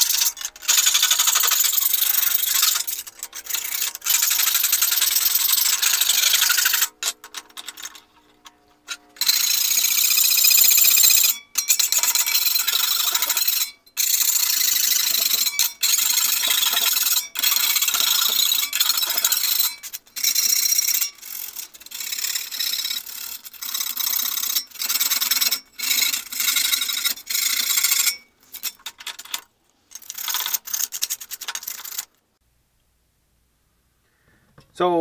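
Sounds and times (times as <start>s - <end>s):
hand file scraping metal: 0.0s - 32.0s.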